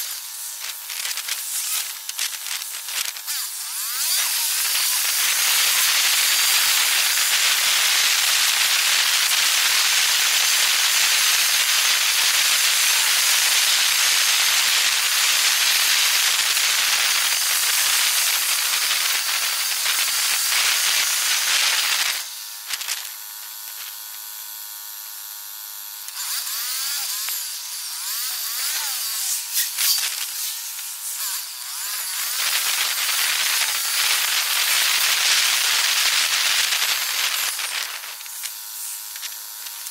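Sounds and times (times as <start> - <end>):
high-pitched hiss: 26.2 - 39.9.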